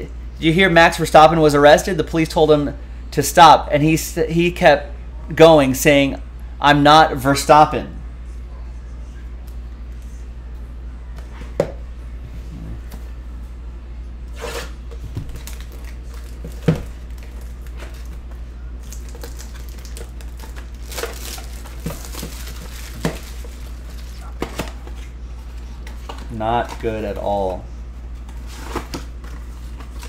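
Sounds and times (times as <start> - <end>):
plastic wrap crinkling and tearing: 15.3 - 18.1, 18.8 - 24.7.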